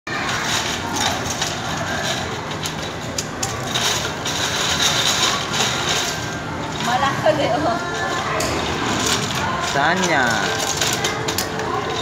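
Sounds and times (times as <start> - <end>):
steady background din: 0.1 - 12.0
plastic tiles clattering: 8.9 - 12.0.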